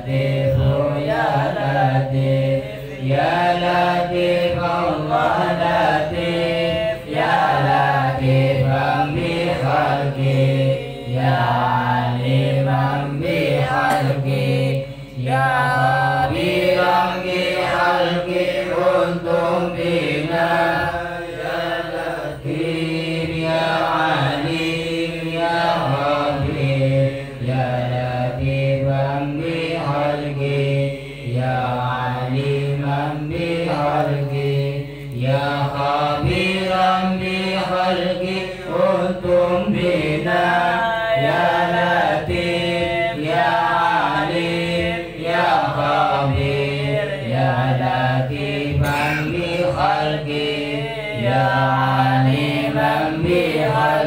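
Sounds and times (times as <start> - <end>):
men chanting through microphone: 0.0 - 54.0.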